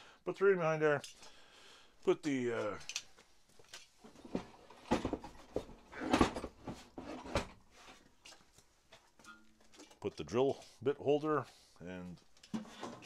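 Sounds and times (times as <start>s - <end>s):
hard objects knocking and clattering: 4.0s - 7.6s.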